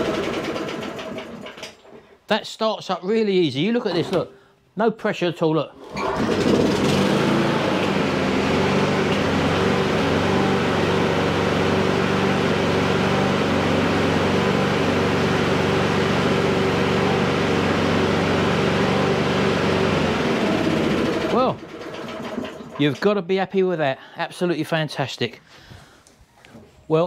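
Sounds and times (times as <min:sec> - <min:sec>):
lawnmower engine running: 0:00.0 - 0:01.7, 0:05.8 - 0:23.1.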